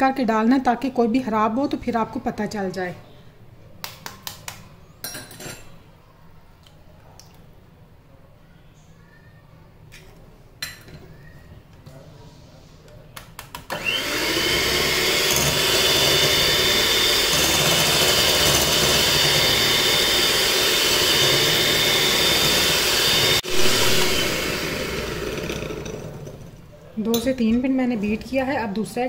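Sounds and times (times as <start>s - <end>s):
electric hand mixer whirring: 13.7s - 26.6s.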